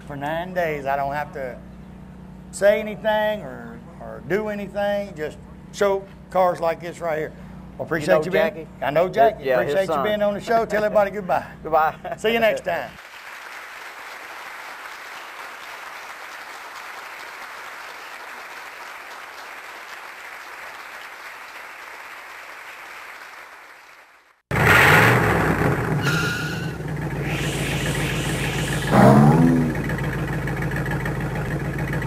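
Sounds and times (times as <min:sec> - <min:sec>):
audience applause: 0:13.0 - 0:24.4
vehicle engine starting and revving: 0:24.5 - 0:32.0.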